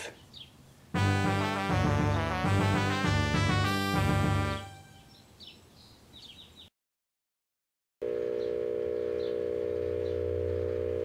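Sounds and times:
microwave oven humming: 8.0s - 11.0s.

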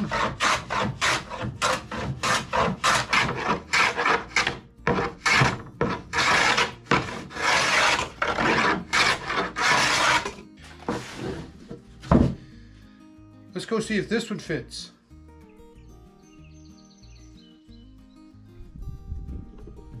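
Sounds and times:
hand plane shaving wood: 0.0s - 12.3s.

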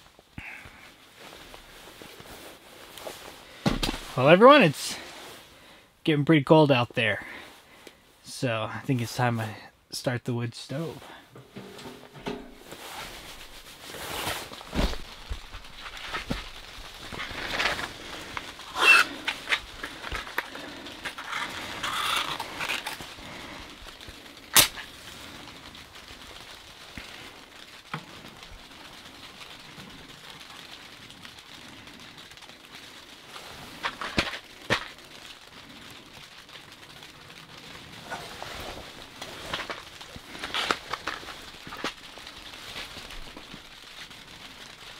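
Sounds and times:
paper fire crackling: 0.0s - 44.9s
paper rustling: 11.1s - 44.9s
sharp crack: 11.4s - 44.2s.

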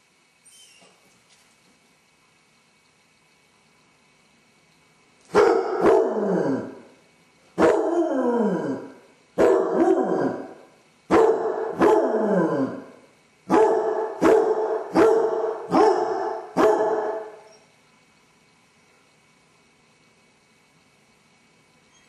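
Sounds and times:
dog baying and howling: 5.4s - 6.8s, 7.6s - 12.9s, 13.5s - 17.6s.

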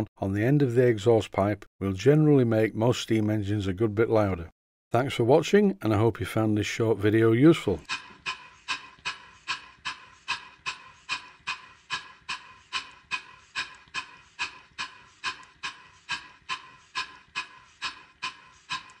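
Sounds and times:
model steam engine chuffing: 7.8s - 19.0s.

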